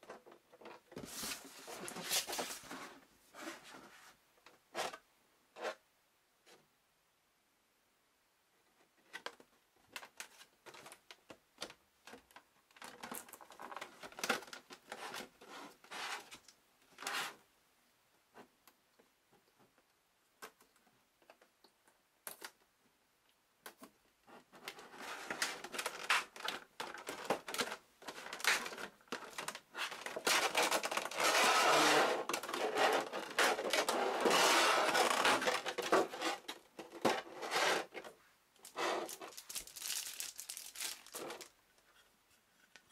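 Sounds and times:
plastic packaging crinkling: 25.3 - 31.4, 38.6 - 41.6.

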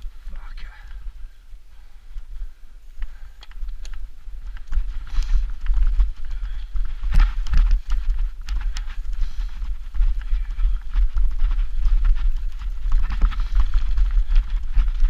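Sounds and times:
wind rumble on microphone: 0.0 - 15.0
bike rattling and knocking: 3.6 - 15.0.

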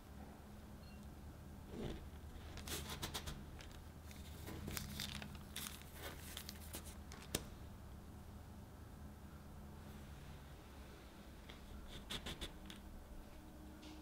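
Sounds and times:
parchment paper crinkling: 2.2 - 7.5.

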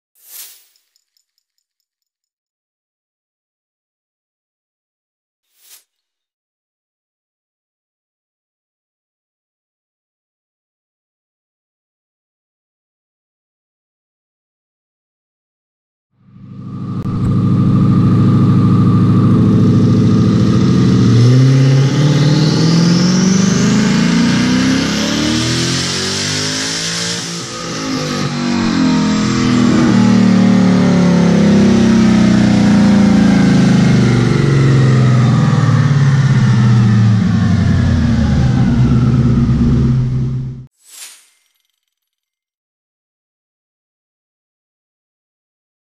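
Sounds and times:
car engine at full throttle: 16.3 - 40.7.

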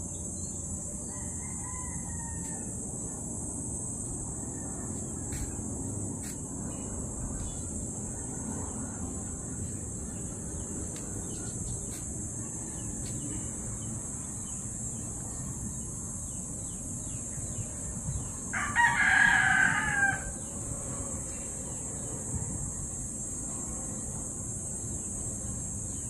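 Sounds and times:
steady high-pitched hiss: 0.0 - 26.0
rooster crowing: 1.0 - 2.8, 18.5 - 20.5.

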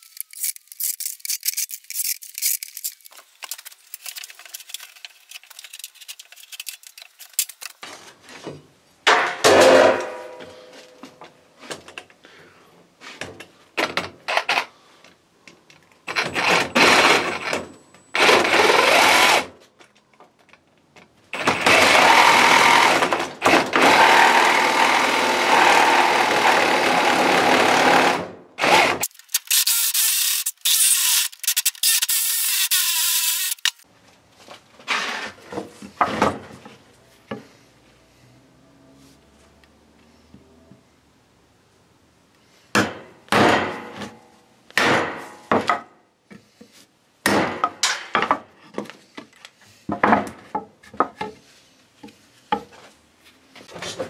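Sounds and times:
reciprocating saw cutting timber: 21.4 - 33.8.

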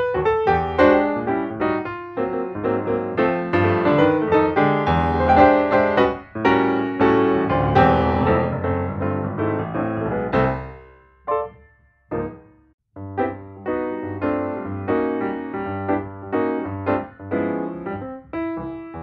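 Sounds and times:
background piano music: 0.0 - 19.0.

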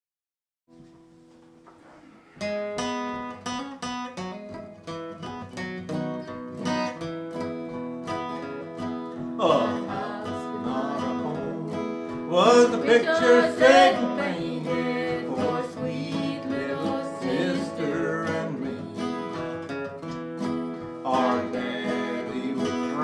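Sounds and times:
acoustic guitars playing: 0.7 - 23.0
person singing: 9.4 - 19.7, 20.9 - 23.0.

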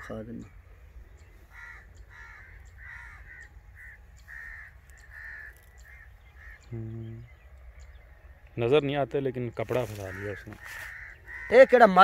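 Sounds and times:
crows cawing: 1.2 - 6.7, 9.7 - 12.0
man humming: 6.7 - 7.3.

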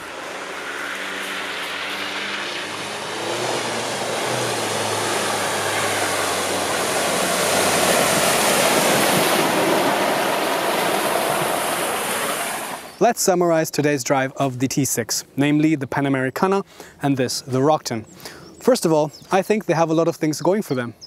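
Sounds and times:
low engine hum: 0.0 - 13.0
tyre road and wind noise: 0.0 - 13.0.

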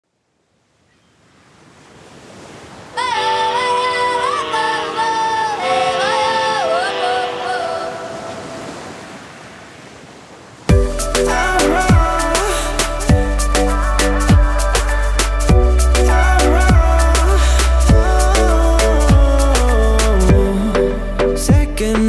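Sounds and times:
gliding vocal-like melody: 3.0 - 8.7, 10.7 - 22.0
rising surf-like noise swell: 10.7 - 21.4.

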